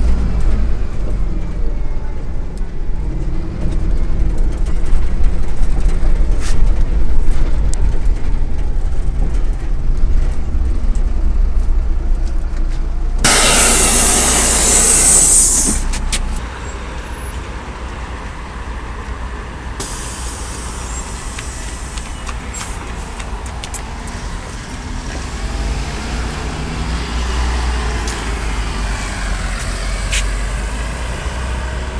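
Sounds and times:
bus engine rumble: 0:00.0 - 0:31.9
bus idling: 0:00.0 - 0:31.9
compressed air hiss: 0:13.3 - 0:16.1, 0:19.8 - 0:23.2.

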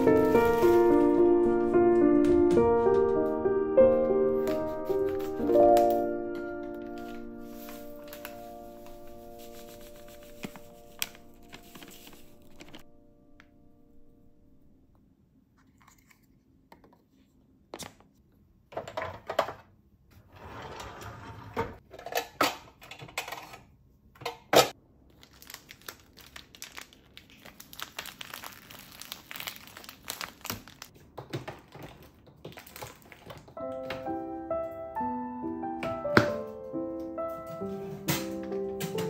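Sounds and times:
plastic rustling: 0:00.0 - 0:03.4, 0:04.2 - 0:12.8, 0:25.1 - 0:34.1.

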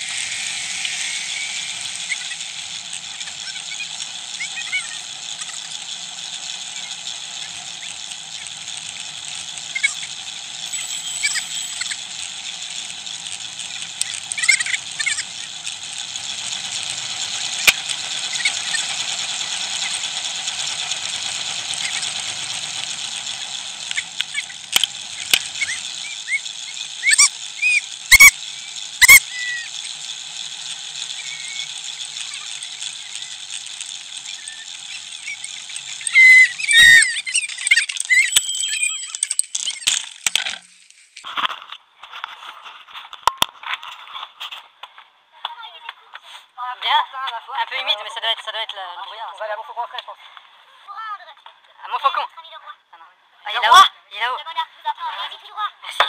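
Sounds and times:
short squeaks: 0:25.4 - 0:29.8, 0:34.2 - 0:40.2.

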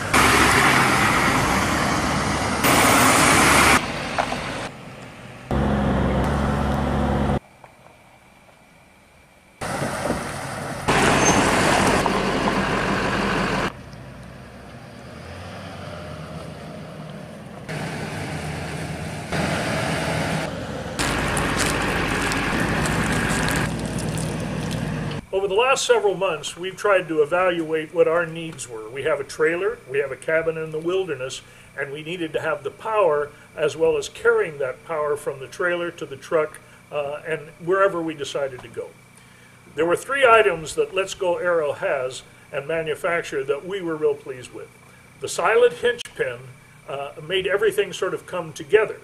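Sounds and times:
truck engine: 0:00.0 - 0:07.4, 0:09.6 - 0:25.3
road noise: 0:00.0 - 0:34.7, 0:38.3 - 0:49.0.

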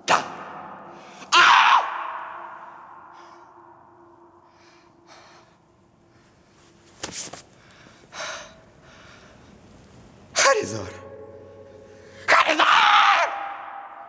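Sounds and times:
man breathing hard: 0:04.3 - 0:06.2, 0:07.6 - 0:09.6.

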